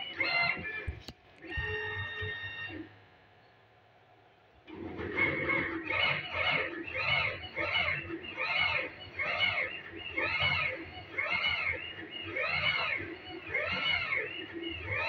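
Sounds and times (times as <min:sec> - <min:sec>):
stepper motor whine: 0:04.7 - 0:15.0.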